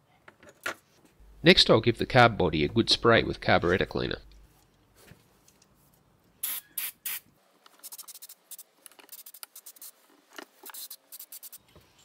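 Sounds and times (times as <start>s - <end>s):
aerosol spray hissing: 10.8s - 11.6s.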